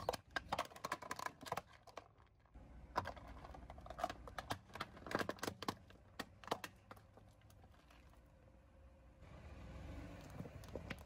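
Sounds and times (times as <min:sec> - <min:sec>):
plastic tubs cracking under tyre: 0:00.0 - 0:08.2, 0:10.2 - 0:11.0
rolling car rumble: 0:07.6 - 0:11.0.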